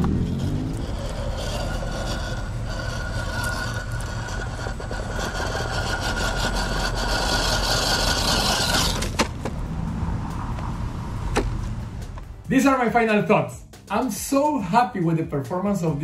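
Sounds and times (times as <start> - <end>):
electric motor whining: 0.0 - 9.3
tyres scrabbling on stone: 0.0 - 9.5.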